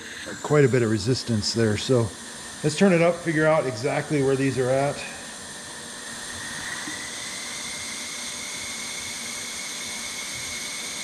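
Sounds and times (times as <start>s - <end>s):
compressed air hissing: 0.0s - 5.6s.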